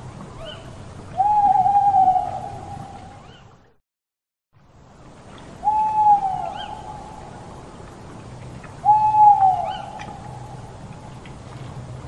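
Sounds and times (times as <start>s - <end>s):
owl hooting: 1.2s - 3.4s, 5.6s - 7.2s, 8.8s - 10.5s.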